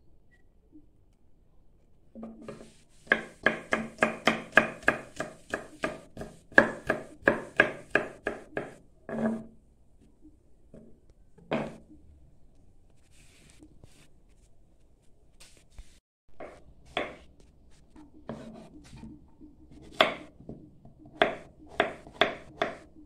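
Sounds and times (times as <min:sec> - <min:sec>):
knife chopping on cutting board: 0:02.4 - 0:09.4, 0:16.4 - 0:17.2, 0:19.8 - 0:20.3, 0:21.1 - 0:22.8.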